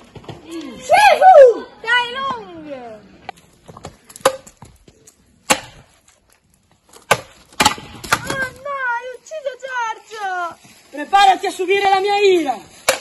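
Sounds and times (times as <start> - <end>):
wooden poles clacking: 3.7 - 9.0, 11.2 - 13.0.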